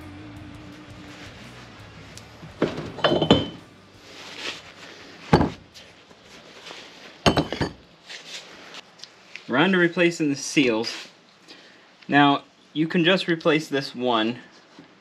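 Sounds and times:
metal clinks and knocks: 2.6s - 3.6s.

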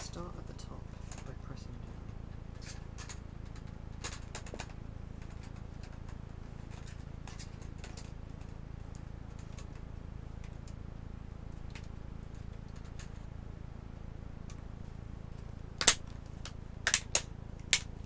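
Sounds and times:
steady low hum: 0.0s - 18.0s
plastic tabs clicking and snapping: 15.8s - 17.9s.

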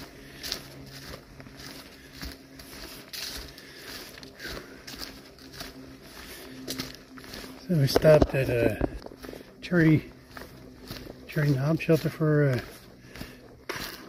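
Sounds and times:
footsteps on dry leaves: 0.0s - 14.0s.

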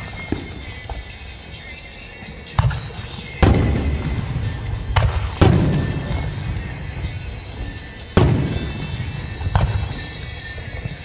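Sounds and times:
firework bang: 2.6s - 6.6s, 8.2s - 10.1s.

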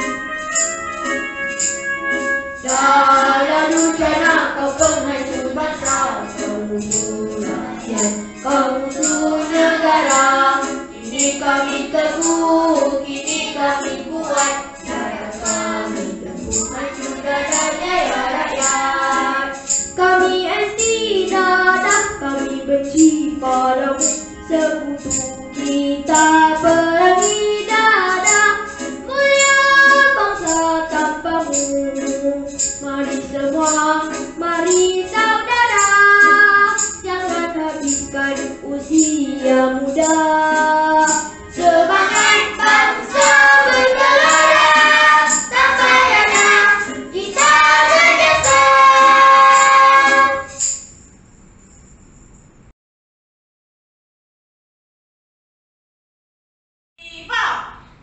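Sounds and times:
high percussion beat: 0.0s - 19.8s, 41.0s - 51.2s
electronic keyboard accompaniment: 0.0s - 50.8s
child singing into microphone: 2.7s - 50.6s.

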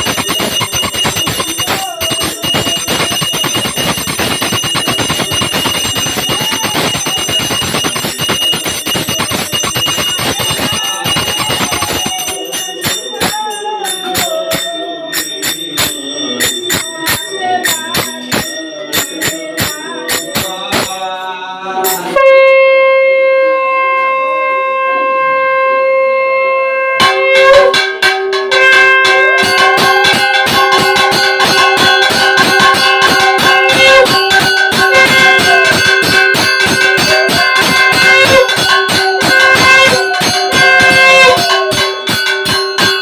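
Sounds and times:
hand bell ringing: 0.0s - 22.2s, 27.0s - 43.0s
conch shell blown: 22.0s - 43.0s.

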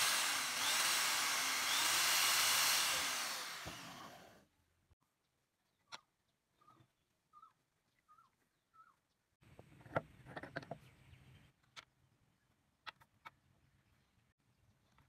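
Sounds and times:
faint bird chirps: 5.7s - 9.2s.

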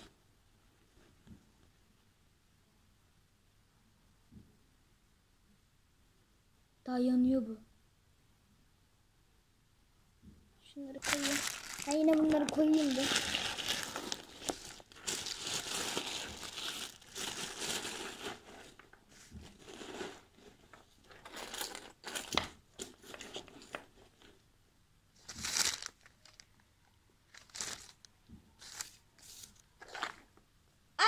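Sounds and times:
plastic bag crinkling: 11.0s - 18.9s, 19.5s - 24.3s, 25.2s - 26.6s, 27.3s - 30.3s.

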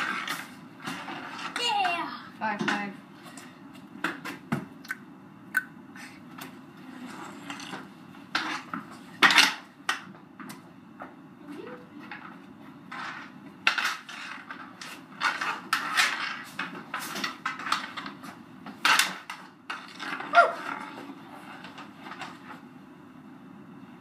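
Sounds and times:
hockey sticks clacking on concrete: 0.0s - 4.7s, 7.2s - 11.2s, 12.0s - 22.5s.

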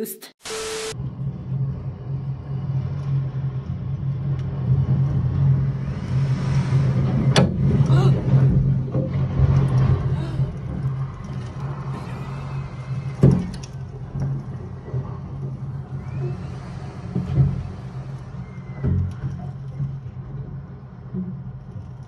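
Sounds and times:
storm wind blowing hard: 1.1s - 21.0s.

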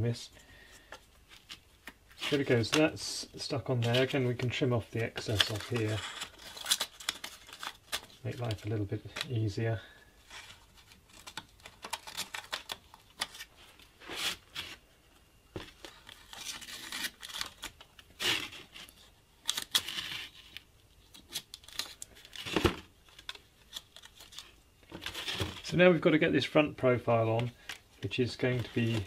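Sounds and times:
paper rustling and crinkling: 0.6s - 9.5s, 10.2s - 14.8s, 27.2s - 29.0s.

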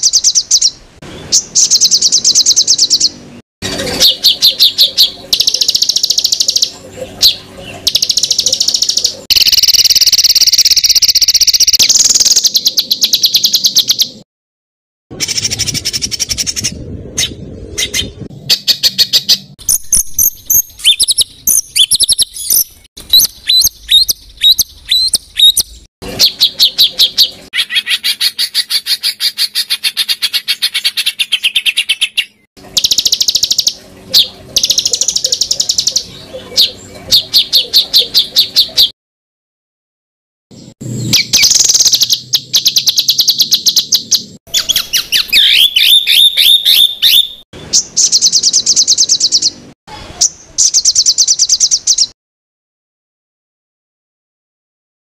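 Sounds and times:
songbird chips and trills: 18.6s - 38.9s.

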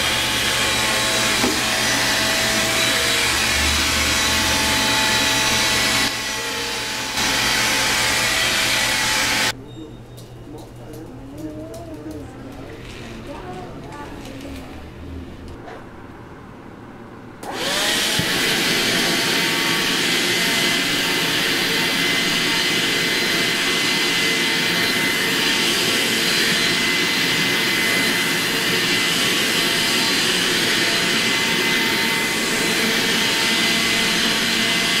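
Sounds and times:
cordless vacuum running: 0.0s - 9.6s, 17.4s - 35.0s.

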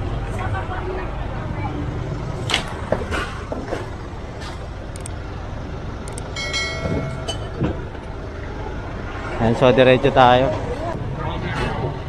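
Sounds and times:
low engine rumble: 0.0s - 12.0s
street market noise: 0.0s - 12.0s
traffic noise: 0.0s - 12.0s.

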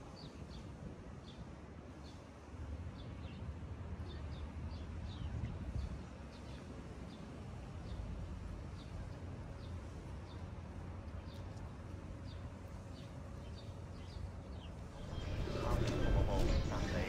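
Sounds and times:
distant traffic rumble: 0.0s - 17.0s
small birds chirping: 8.7s - 17.0s.

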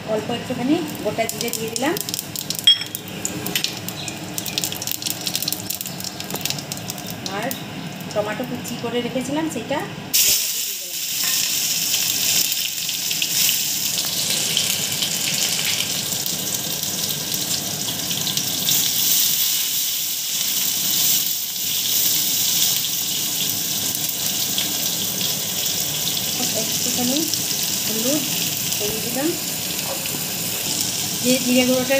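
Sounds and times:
vegetables sizzling in hot oil: 0.7s - 8.9s, 10.1s - 31.9s.

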